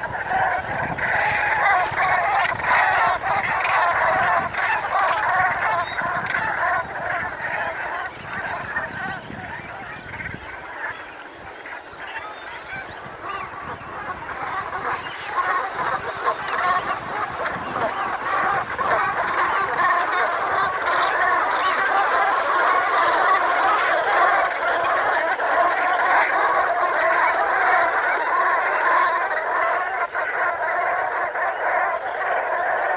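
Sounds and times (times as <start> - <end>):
geese calling: 0.0 - 32.9.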